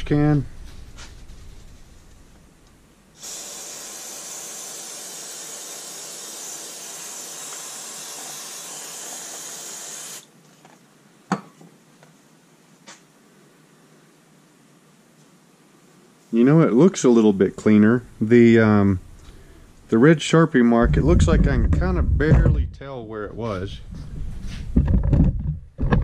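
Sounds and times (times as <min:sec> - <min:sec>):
aerosol spray hissing: 0:03.2 - 0:10.3.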